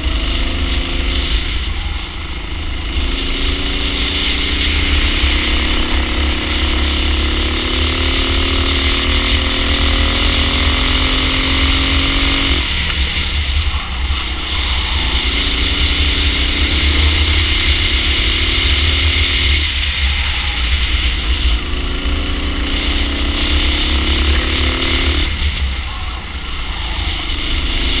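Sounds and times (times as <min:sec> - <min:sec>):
kart engine revving: 0:00.0 - 0:28.0.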